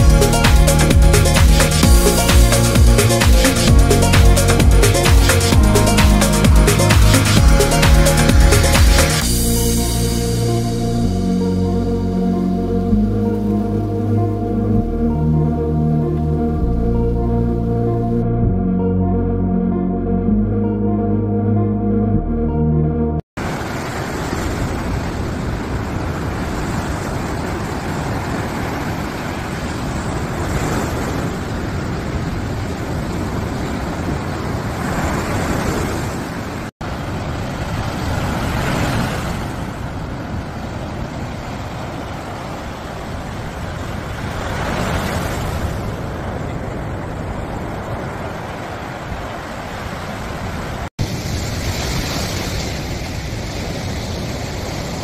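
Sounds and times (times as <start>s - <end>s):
ocean waves crashing on beach: 23.4s - 55.0s.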